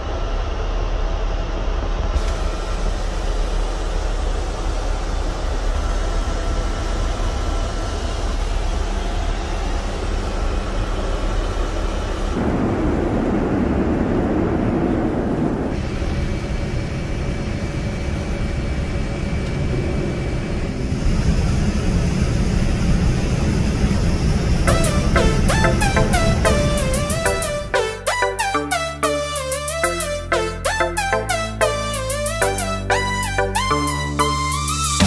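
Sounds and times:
jet engines and rushing air: 12.2 - 35.0.

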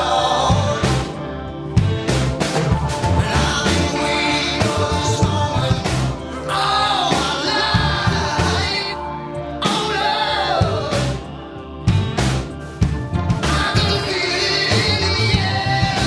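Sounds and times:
person singing: 0.0 - 1.6, 3.0 - 12.2, 13.3 - 16.0
bass: 0.0 - 16.0.

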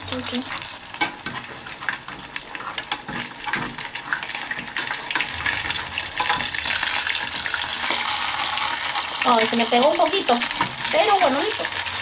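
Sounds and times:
food sizzling in hot oil: 0.0 - 12.0
spatula scraping pot bottom: 1.0 - 8.9.

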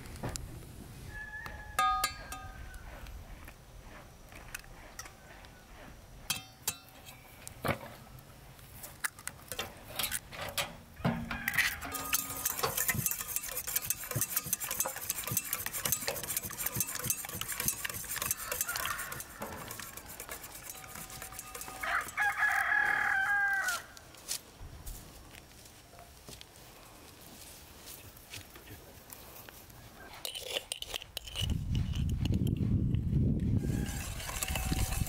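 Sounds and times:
rooster crowing: 1.1 - 2.9, 11.0 - 12.1, 18.3 - 19.7, 21.6 - 24.0, 33.6 - 35.0
whisk beating eggs in bowl: 11.9 - 22.9, 33.6 - 35.0.

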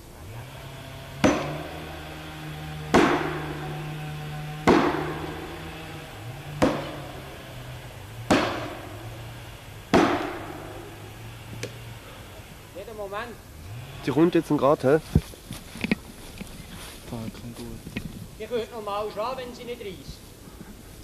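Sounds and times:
low steady hum: 0.0 - 21.0
hammer blows on wedges: 0.6 - 12.5.

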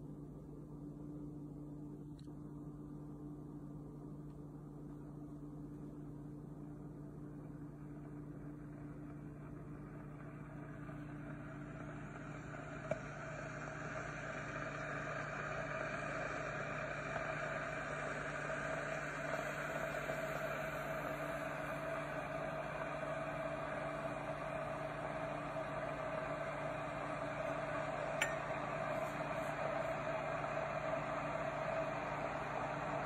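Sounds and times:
electrical hum: 0.0 - 33.0
coffee heating hiss: 7.4 - 33.0.

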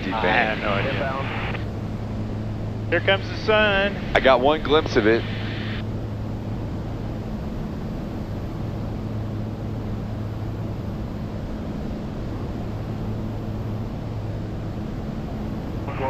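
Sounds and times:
aircraft engines droning: 0.0 - 16.0.

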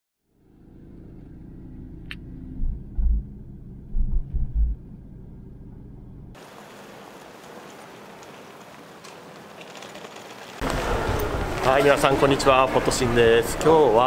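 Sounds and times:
road rumble inside car: 0.3 - 6.4
heavy low thumps: 2.2 - 6.4
steady hiss: 6.4 - 10.6.

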